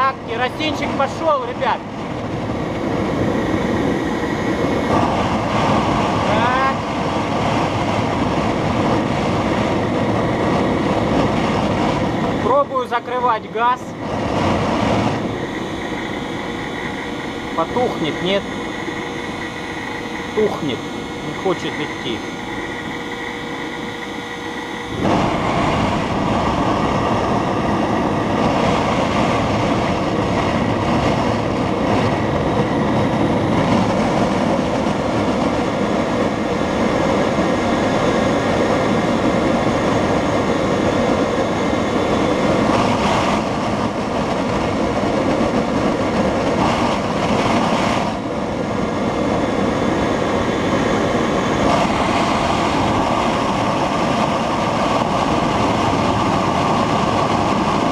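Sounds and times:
compressor whine: 0.0 - 57.9
loud rush of air: 0.0 - 57.9.

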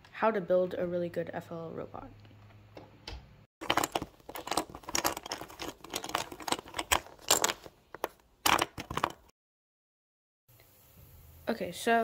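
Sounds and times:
plastic bricks clicking and clattering: 3.6 - 9.3.

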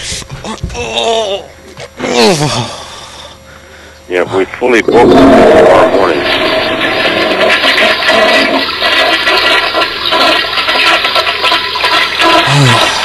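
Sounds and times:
toilet flushing: 4.9 - 13.0.

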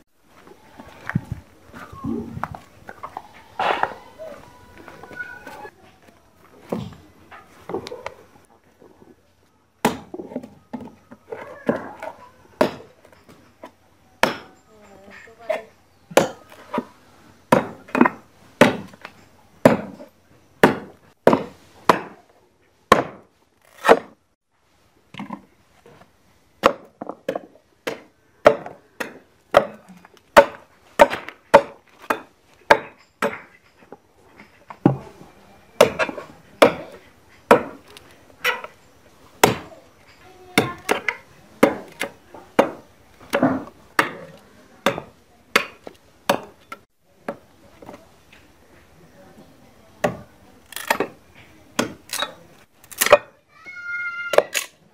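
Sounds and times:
machete chopping wood: 9.8 - 10.3, 12.6 - 12.9, 14.2 - 14.5, 16.1 - 16.9, 17.5 - 19.0, 19.6 - 20.0, 20.6 - 22.2, 22.9 - 24.2, 26.6 - 33.5, 35.8 - 37.9, 39.4 - 39.8, 40.6 - 46.6, 50.0 - 51.2, 51.8 - 53.3.

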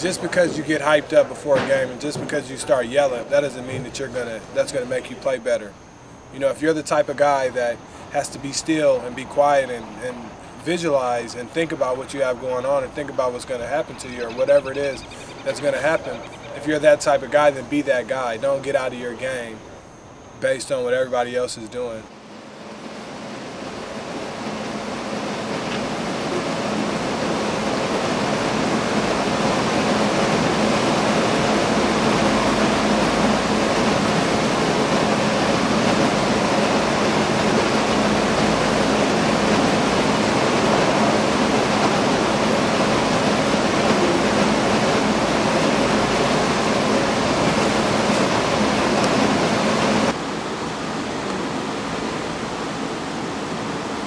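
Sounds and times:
faint low hum: 0.0 - 22.2
pedestal fan blowing: 0.0 - 54.0.

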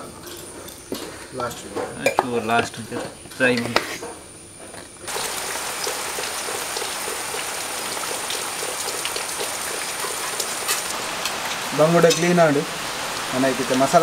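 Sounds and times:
heavy rain: 5.1 - 14.0
water dripping off roof edge: 5.1 - 14.0.

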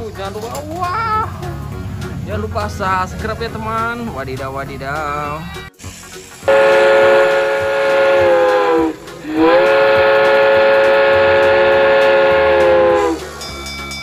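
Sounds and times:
train whistle blasts: 6.4 - 13.4.

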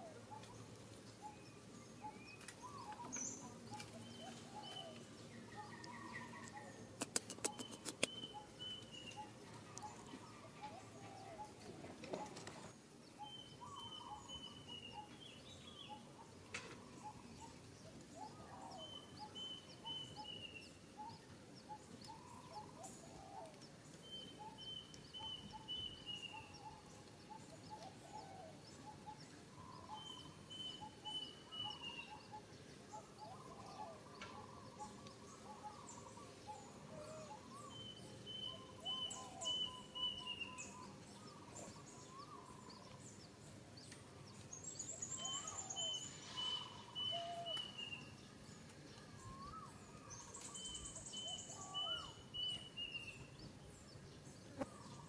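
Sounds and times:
small bird chirps: 0.3 - 11.7, 18.2 - 53.6
sharp clicks: 7.0 - 8.2.

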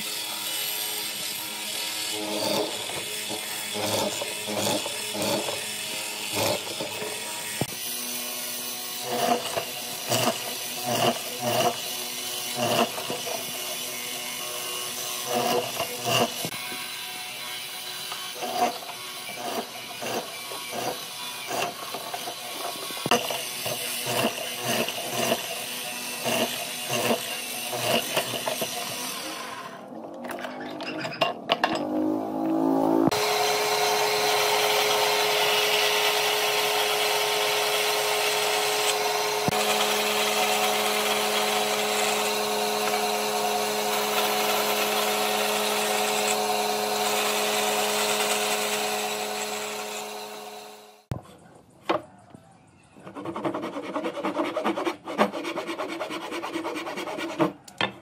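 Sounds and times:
mortiser machine running: 1.7 - 16.6, 31.5 - 51.1.

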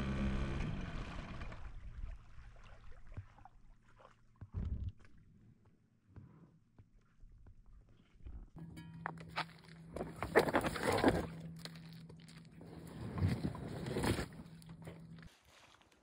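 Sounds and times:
low steady hum: 8.3 - 15.3
rustling and scraping of rubber dinghy: 8.6 - 16.0
footsteps on stones: 9.0 - 16.0.

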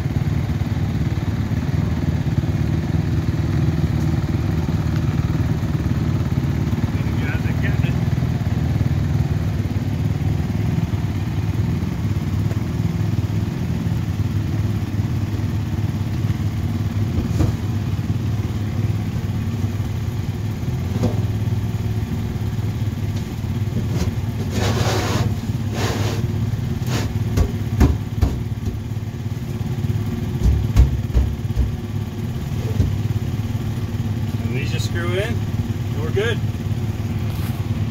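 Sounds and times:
engine idling drone: 0.0 - 37.9
soft knocks: 30.4 - 31.9.

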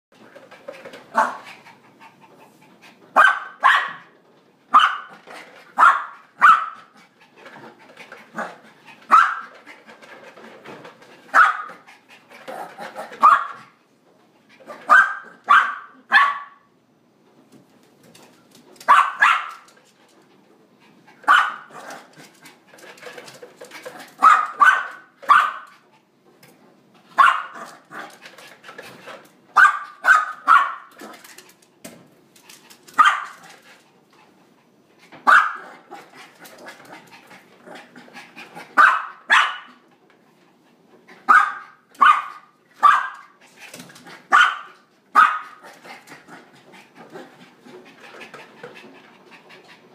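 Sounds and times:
puppy barking: 3.2 - 4.1, 4.7 - 5.2, 5.8 - 6.9, 9.1 - 9.5, 11.3 - 11.8, 13.2 - 13.7, 14.8 - 16.7, 18.9 - 19.7, 21.3 - 21.7, 24.2 - 25.7, 27.2 - 27.9, 29.6 - 30.9, 33.0 - 33.4, 35.2 - 35.8, 38.8 - 39.8, 41.3 - 43.4, 44.3 - 45.6.

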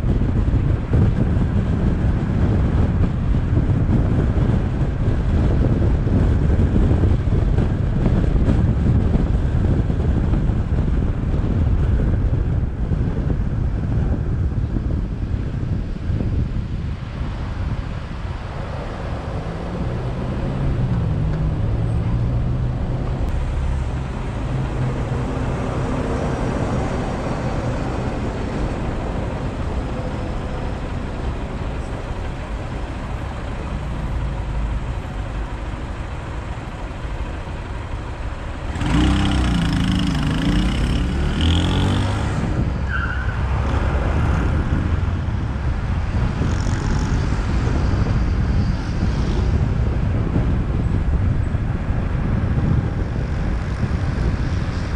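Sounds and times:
road and wind noise: 0.0 - 54.9
traffic pulling away: 0.0 - 54.9
engines idling: 17.6 - 41.1
motorcycle engine revving: 38.5 - 42.8.

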